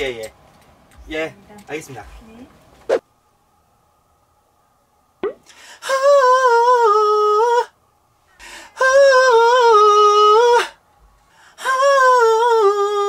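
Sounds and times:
man singing long high notes: 5.8 - 7.8, 8.7 - 10.8, 11.6 - 13.0.

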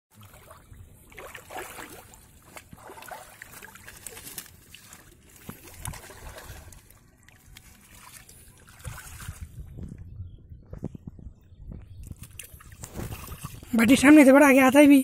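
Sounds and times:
shallow water sloshing and splashing: 0.1 - 10.1, 12.1 - 13.9.

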